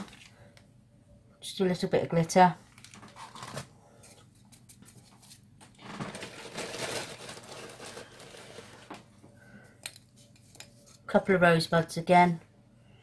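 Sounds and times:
plastic mould rustling: 2.7s - 3.7s, 4.8s - 9.2s.

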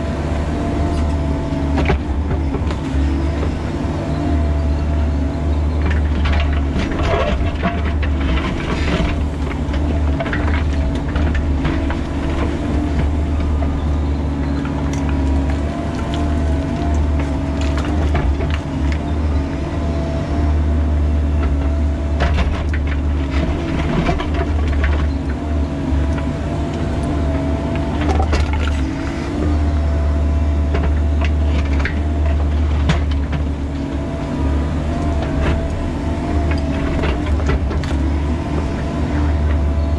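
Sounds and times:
diesel engine under load: 0.0s - 39.9s
bucket scraping and clanking on rock: 6.0s - 13.2s.

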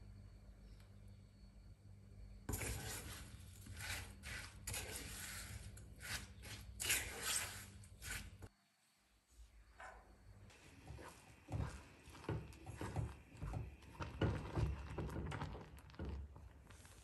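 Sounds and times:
spatula scraping saucepan: 2.5s - 8.5s, 10.6s - 17.0s.

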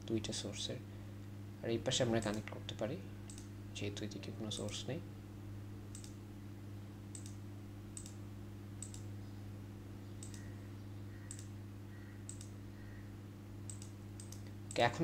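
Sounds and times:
low electrical hum: 0.0s - 15.0s
computer mouse clicking: 3.3s - 3.5s, 5.9s - 6.2s, 7.1s - 7.4s, 8.0s - 8.2s, 8.8s - 9.1s, 10.2s - 10.5s, 11.2s - 11.5s, 12.3s - 12.6s, 13.7s - 14.8s.

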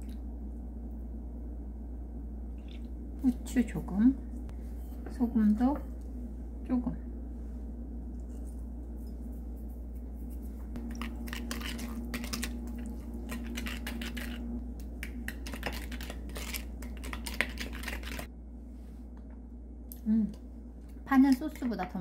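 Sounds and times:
spoon scraping glass bowl: 10.8s - 14.4s, 15.3s - 18.3s.

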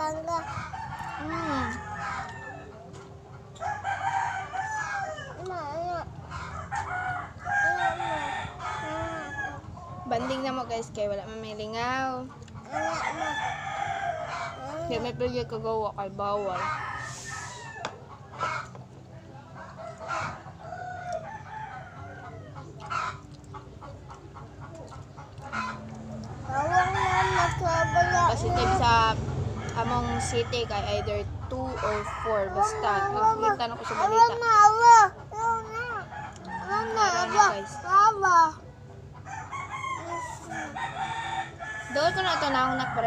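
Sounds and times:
chickens clucking: 0.0s - 4.2s, 6.1s - 34.4s, 36.0s - 43.0s
roosters crowing: 0.5s - 5.4s, 6.3s - 10.5s, 12.6s - 18.7s, 19.6s - 23.4s, 25.4s - 34.3s, 36.0s - 38.2s, 39.2s - 43.0s
rooster crowing: 12.7s - 14.7s, 16.4s - 18.0s, 26.5s - 33.1s, 39.3s - 43.0s.

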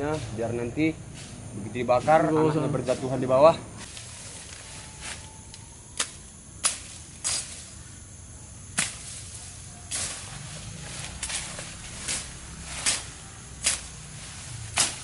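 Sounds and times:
swishing strokes through leaves: 8.8s - 15.0s.

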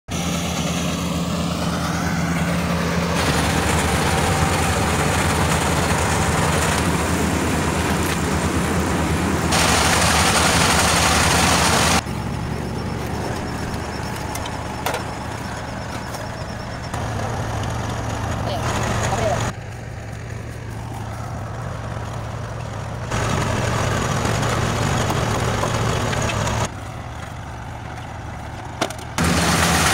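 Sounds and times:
diesel engine hum: 0.0s - 29.9s
whir of threshing machinery: 0.1s - 29.9s.

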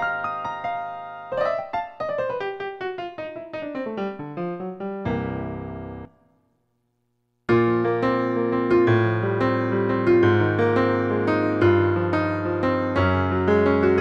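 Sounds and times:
synthesizer keyboard piano tone: 0.0s - 6.3s.

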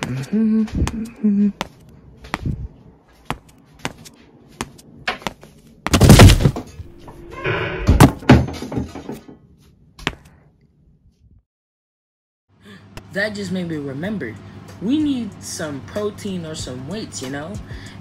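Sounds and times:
sharp hits and knocks: 4.6s - 6.7s.

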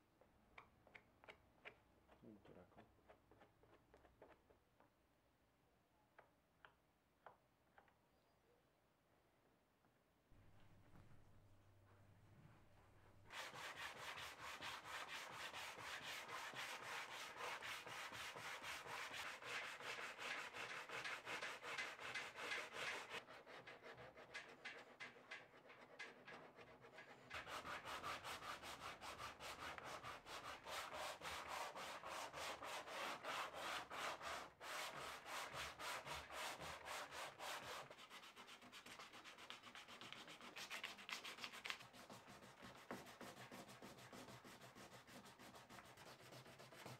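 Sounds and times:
sanding block rubbing fiberglass: 13.3s - 24.1s, 27.4s - 46.9s.

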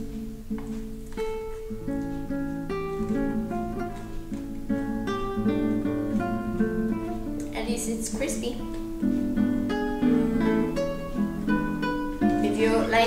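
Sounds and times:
acoustic guitar melody: 0.0s - 13.0s.

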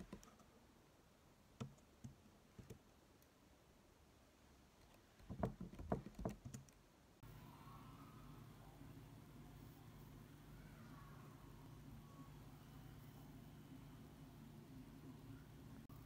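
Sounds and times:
low steady hum: 0.0s - 16.0s
typing on keyboard: 1.6s - 2.8s, 4.8s - 6.8s.

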